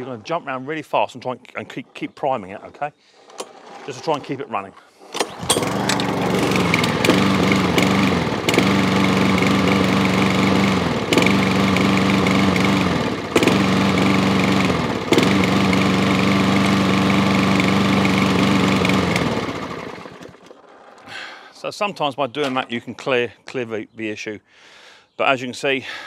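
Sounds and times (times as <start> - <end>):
lawnmower engine running unevenly: 5.0 - 21.0.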